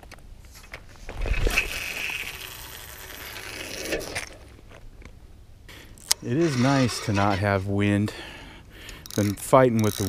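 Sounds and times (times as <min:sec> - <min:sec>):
line whirring off reel: 0:01.1 - 0:04.4
reel clicks: 0:08.8 - 0:10.0.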